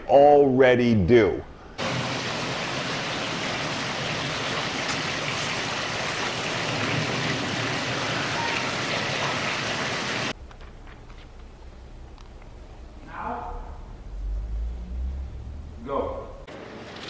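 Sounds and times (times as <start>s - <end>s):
steady outdoor hiss: 0.0s - 17.0s
low room hum: 10.3s - 16.8s.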